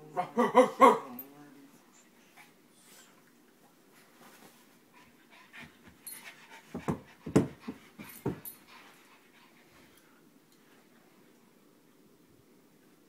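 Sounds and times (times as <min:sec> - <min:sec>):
puppies panting: 0:04.8 - 0:10.2.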